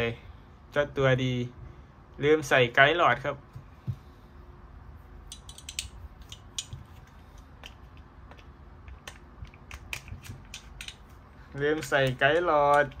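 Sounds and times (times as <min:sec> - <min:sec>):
pistol parts clicking: 0:05.3 - 0:13.0.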